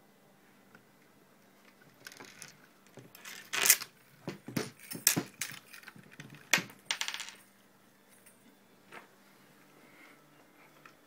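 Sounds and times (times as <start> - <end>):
metal chain clinking: 4.6 - 5.9.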